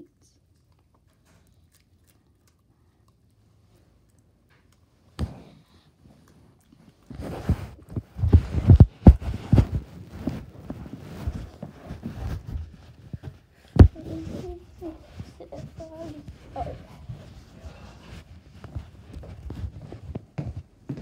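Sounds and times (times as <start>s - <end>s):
microphone rubbing on clothing: 7.1s - 21.0s.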